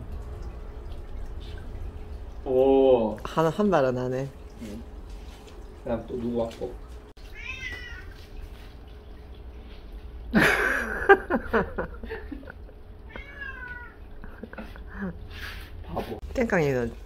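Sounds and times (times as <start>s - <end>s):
cat meowing: 7.3s - 8.2s, 13.1s - 14.0s.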